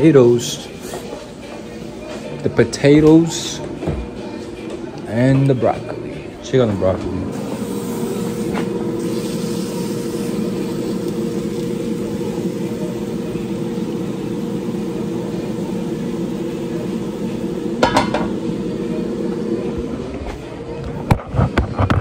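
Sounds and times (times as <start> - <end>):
kitchen appliance humming: 4.6 - 21.2.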